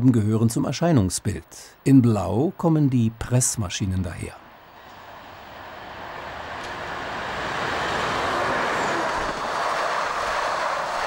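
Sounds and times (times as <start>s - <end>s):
diesel locomotive passing: 4.6s - 11.0s
freight wagons rolling on rails: 5.8s - 11.0s.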